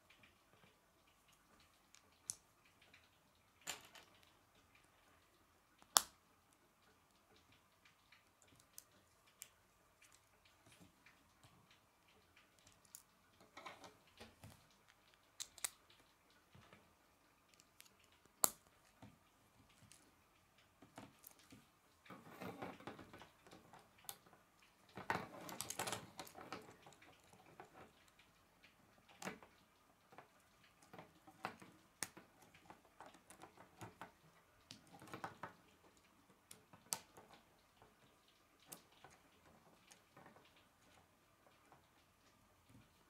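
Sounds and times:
plastic pieces clicking and rattling: 0:24.9 - 0:28.0.

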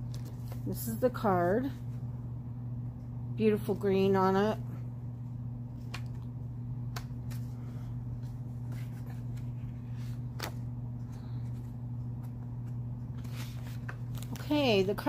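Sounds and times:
paper card rustling: 0:00.0 - 0:00.7, 0:06.9 - 0:14.5
low hum: 0:00.0 - 0:15.0.

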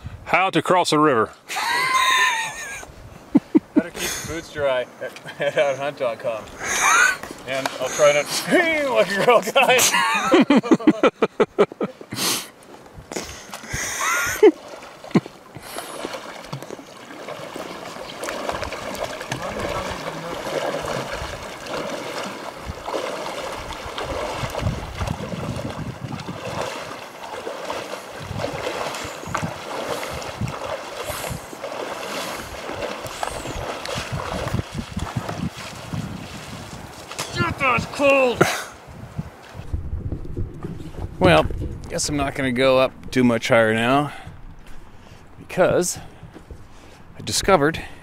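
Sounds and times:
water splashing from wading: 0:13.1 - 0:38.6.

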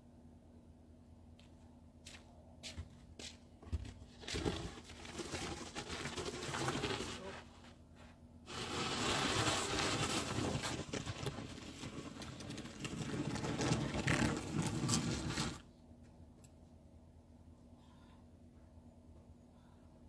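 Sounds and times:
snow shovel scraping pavement: 0:04.2 - 0:07.8, 0:08.5 - 0:15.6.

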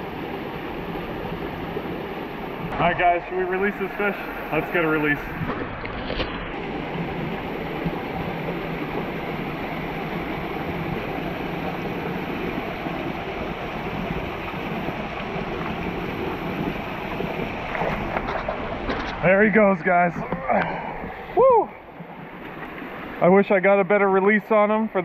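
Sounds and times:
river water rushing: 0:00.0 - 0:23.4.

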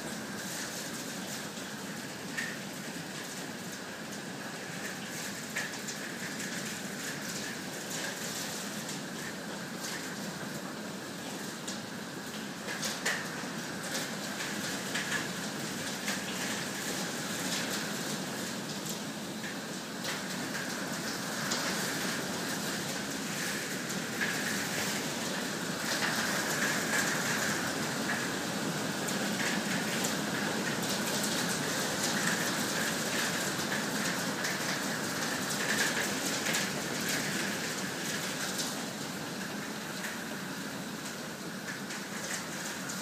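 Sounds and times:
heavy hail and rain: 0:00.0 - 0:43.0
hailstones clicking on ground: 0:12.7 - 0:17.9, 0:29.1 - 0:38.8.

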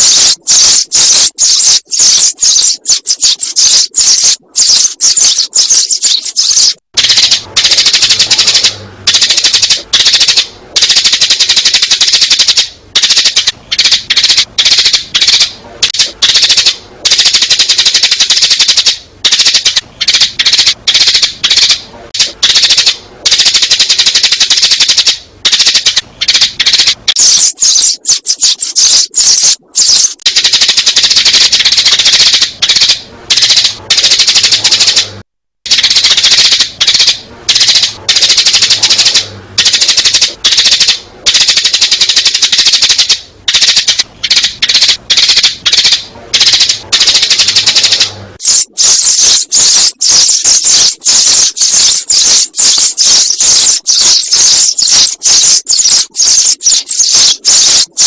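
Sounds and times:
sparrows chirping rapidly: 0:00.0 - 0:07.4, 0:27.1 - 0:30.2, 0:48.4 - 0:58.0.

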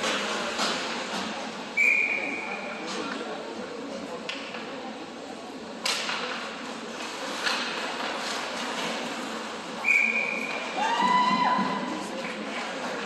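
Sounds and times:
crowd hubbub in a rink: 0:00.0 - 0:13.0.

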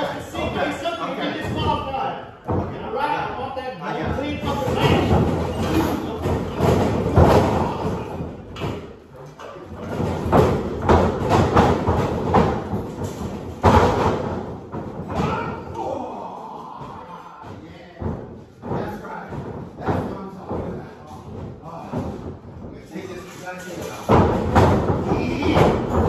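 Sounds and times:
bodies slamming on ring canvas: 0:04.0 - 0:09.0, 0:09.7 - 0:16.2, 0:23.8 - 0:26.0.

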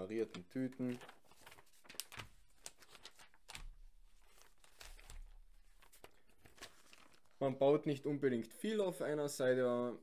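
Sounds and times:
paper pages turning: 0:00.2 - 0:07.5.

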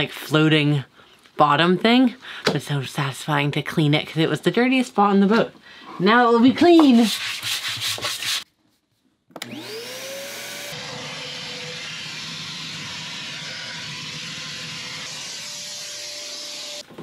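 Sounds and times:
shop vacuum running: 0:09.4 - 0:17.0.

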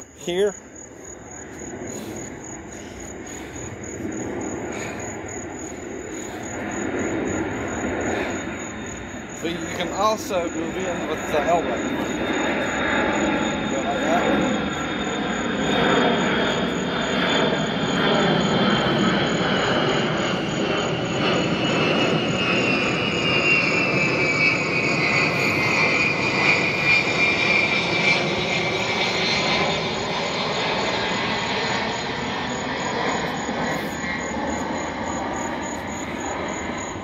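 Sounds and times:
aircraft engine with falling whine: 0:00.0 - 0:37.0.

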